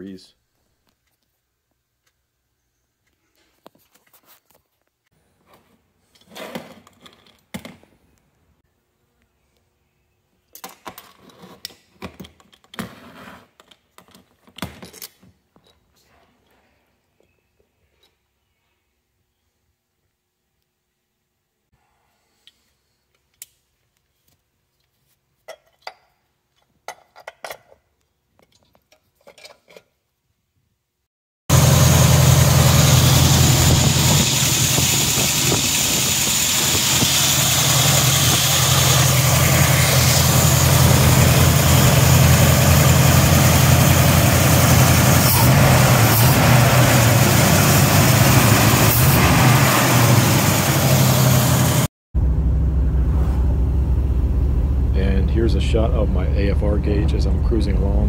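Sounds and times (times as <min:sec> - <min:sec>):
car engine idling: 0:31.5 - 0:58.0.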